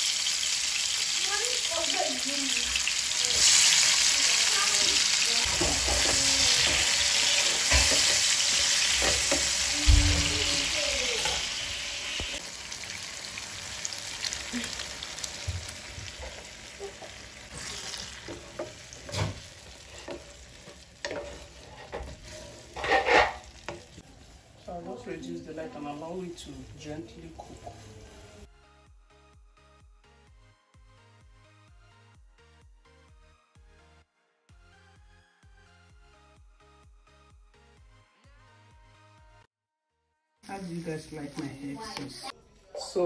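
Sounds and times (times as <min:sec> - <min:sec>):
vegetables sizzling in hot oil: 0:00.0 - 0:28.5, 0:40.4 - 0:42.3.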